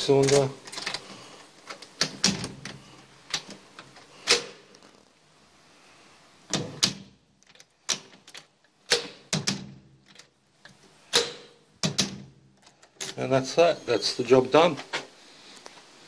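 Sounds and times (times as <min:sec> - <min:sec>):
bolt and latch snapping: 0:01.7 - 0:04.6, 0:06.5 - 0:13.2.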